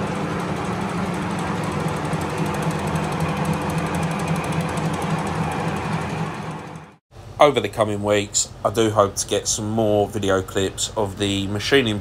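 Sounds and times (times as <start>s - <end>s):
fast even rattle: 0.0s - 7.0s
machinery hum: 0.0s - 12.0s.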